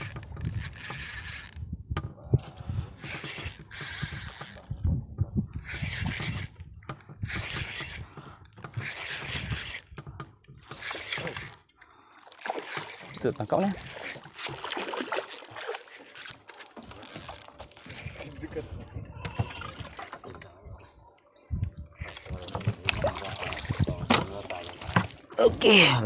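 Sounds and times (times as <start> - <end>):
spinning reel cranking: 0.0 - 1.6, 3.0 - 4.6, 5.6 - 6.5, 17.0 - 18.4.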